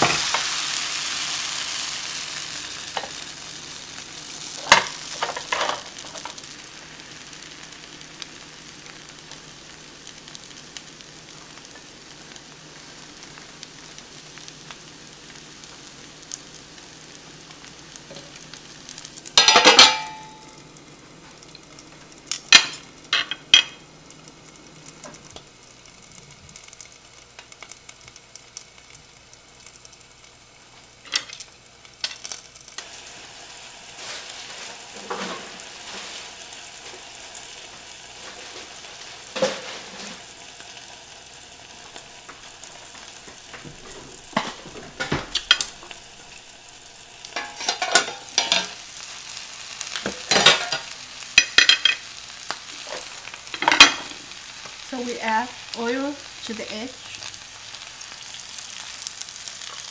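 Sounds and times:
batter sizzling in a pan: 0.0s - 59.9s
metal lid clattering onto pan: 19.4s - 20.4s, 47.4s - 48.7s.

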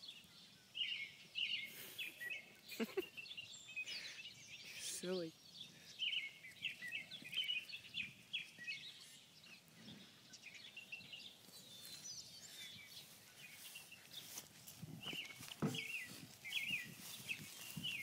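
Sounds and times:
birds chirping and singing: 0.0s - 18.0s.

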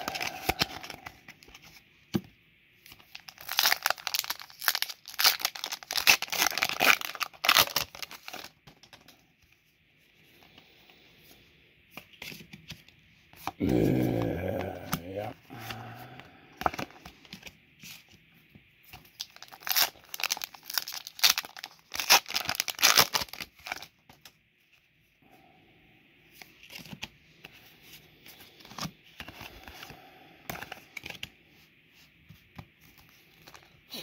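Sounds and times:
foil wrapper crinkling and tearing: 0.0s - 1.3s, 2.9s - 8.9s, 19.0s - 24.0s
trading cards rustling: 0.0s - 1.8s, 11.9s - 18.2s, 18.9s - 24.2s, 26.4s - 31.3s.

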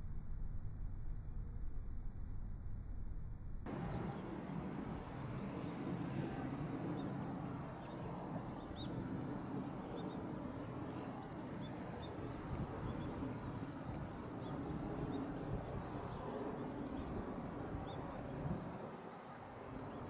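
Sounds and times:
steady low rumble: 0.0s - 20.0s
faint high bird chirps: 7.8s - 17.2s.

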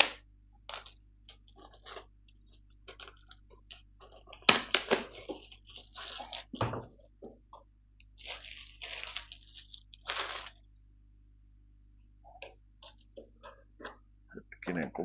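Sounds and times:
plastic wrap crinkling: 0.0s - 10.8s.

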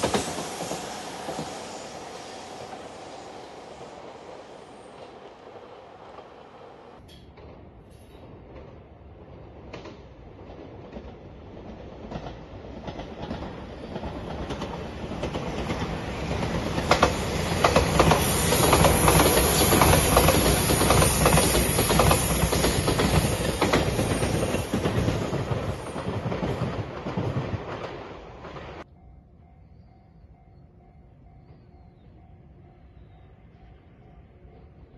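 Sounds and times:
electric train rumble: 0.0s - 34.9s
wheels clacking over rail joints: 9.6s - 28.8s.

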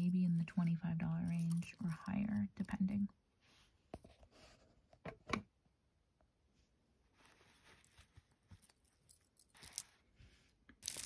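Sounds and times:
necklace chain rustling: 0.1s - 2.8s, 7.6s - 10.1s, 10.8s - 11.0s.

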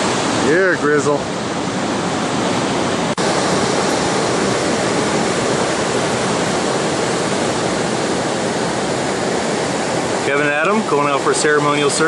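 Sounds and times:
waves breaking: 0.0s - 12.0s.

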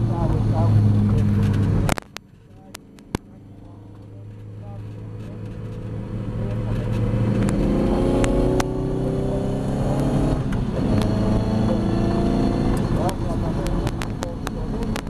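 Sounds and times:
race car engine accelerating: 0.0s - 15.0s
sharp clicks: 12.7s - 15.0s.

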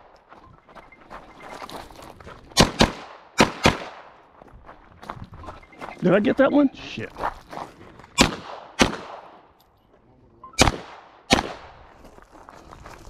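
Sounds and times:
gunshots: 2.6s - 4.2s, 8.2s - 9.5s, 10.6s - 11.8s.

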